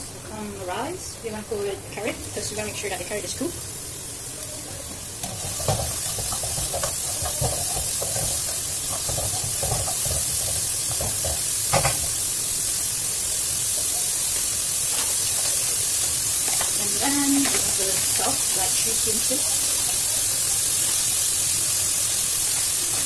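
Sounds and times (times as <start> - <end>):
vegetables sizzling in oil: 0.0 - 23.0
spatula scraping a wok: 5.2 - 12.4.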